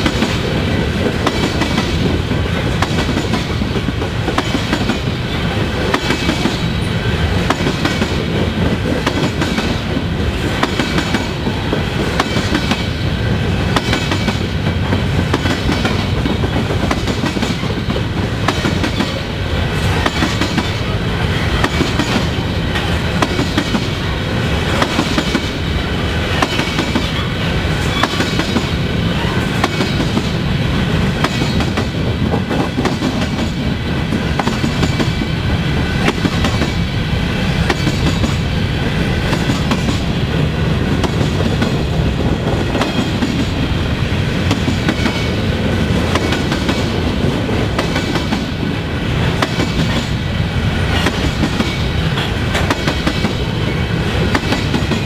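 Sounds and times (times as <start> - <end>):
wheels clacking over rail joints: 0.0 - 35.4, 50.8 - 55.0
train wheels rumbling on rail: 0.0 - 55.0.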